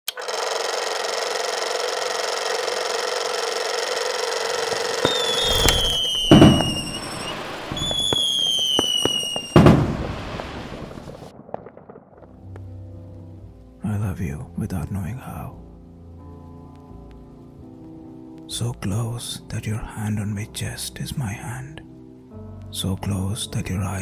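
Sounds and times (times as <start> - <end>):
firework whistle and bang: 4.7 - 11.0.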